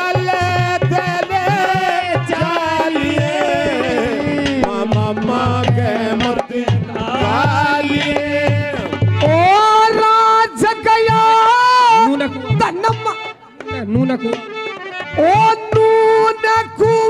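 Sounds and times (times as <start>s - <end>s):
hand drum beat: 0.1s - 9.6s
folk melody with sliding notes: 0.8s - 17.0s.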